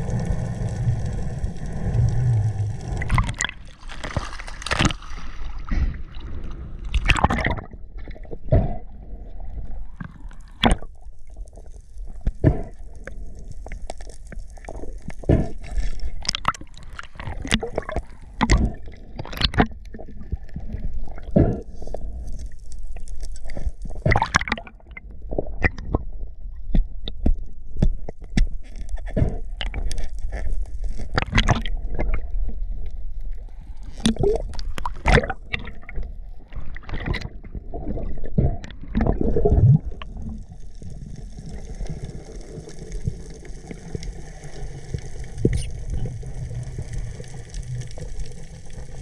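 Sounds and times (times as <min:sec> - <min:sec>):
steady low rumble: 0:00.0 - 0:04.0
water splashing and gurgling: 0:00.0 - 0:27.4, 0:28.1 - 0:49.0.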